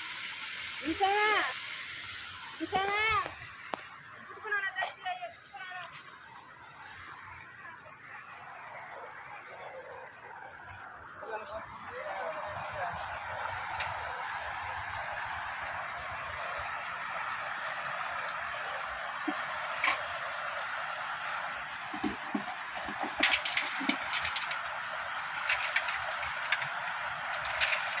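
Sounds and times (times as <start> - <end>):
water pouring over a weir: 0.0 - 4.3, 12.6 - 28.0
fish trap clicking and rattling: 22.9 - 24.8, 25.4 - 28.0.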